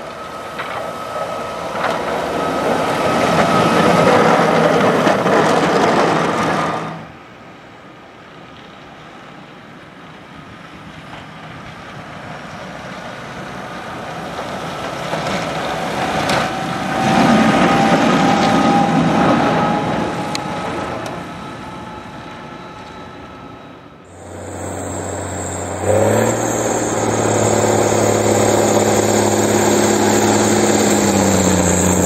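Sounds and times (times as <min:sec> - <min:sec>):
steady whine: 0:00.0 - 0:07.2, 0:14.2 - 0:32.0
tractor engine running: 0:24.1 - 0:32.0.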